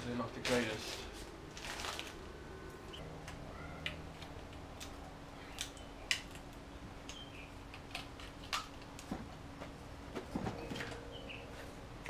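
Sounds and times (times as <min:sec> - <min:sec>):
faint steady hum: 0:00.0 - 0:12.0
clicks and crackles of fibreglass: 0:03.2 - 0:09.4.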